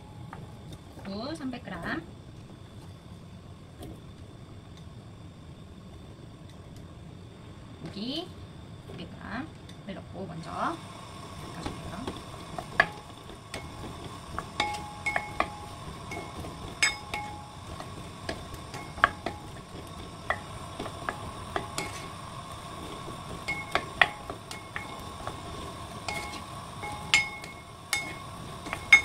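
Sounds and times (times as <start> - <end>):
faint oil sizzle: 0.0 - 29.0
spatula knocking and scraping pot: 11.6 - 22.2, 22.8 - 29.0.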